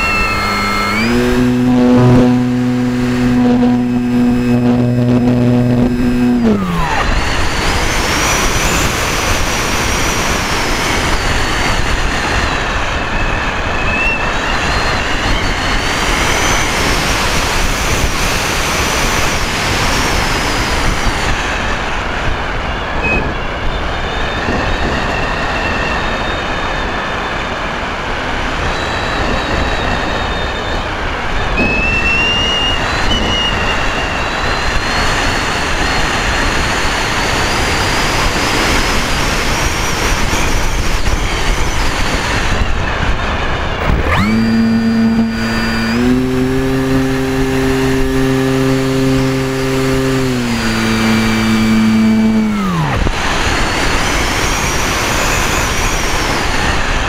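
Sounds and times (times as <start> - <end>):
faint high whine: 0.0 - 57.0
model aircraft propeller tone: 0.0 - 57.0
wind noise: 0.0 - 57.0.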